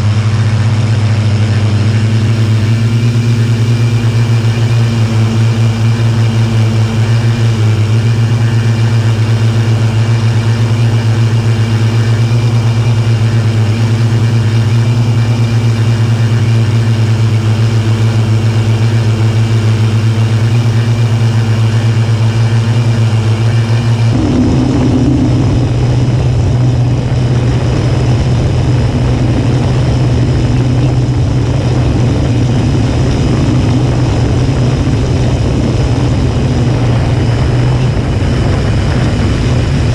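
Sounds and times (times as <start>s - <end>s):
quadcopter propellers buzzing: 0.0s - 39.9s.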